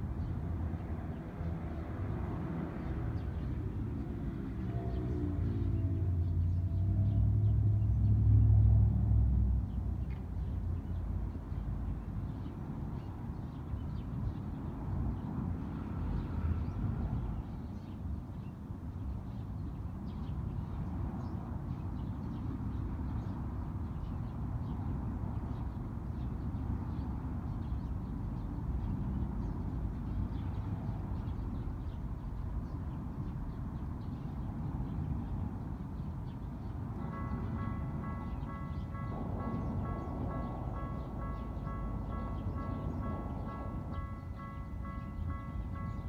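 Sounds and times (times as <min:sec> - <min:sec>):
sparrows chirping faintly: 0:09.6 - 0:46.0.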